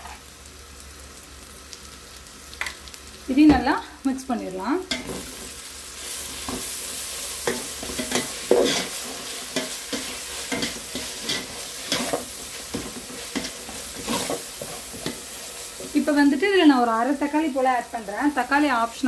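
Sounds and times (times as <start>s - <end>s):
onions sizzling in oil: 0.0s - 19.0s
spatula scraping and knocking pot: 7.4s - 15.2s.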